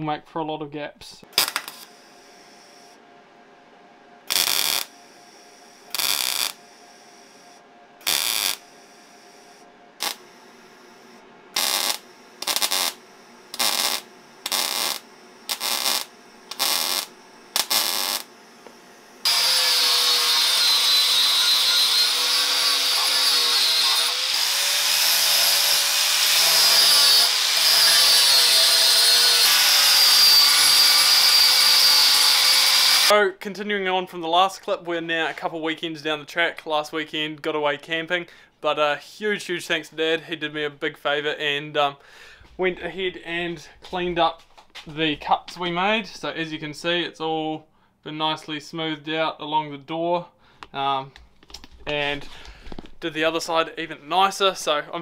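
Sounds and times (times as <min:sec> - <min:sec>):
welder crackling bursts: 0:01.3 - 0:02.7, 0:04.3 - 0:07.3, 0:08.0 - 0:08.8, 0:10.0 - 0:33.1
angle grinder whining: 0:01.4 - 0:02.9, 0:04.3 - 0:33.1.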